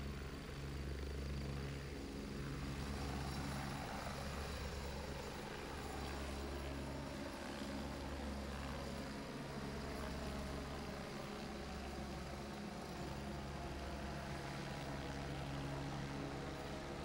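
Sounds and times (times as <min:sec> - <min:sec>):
helicopter rotor and engines: 0:00.0 - 0:17.0.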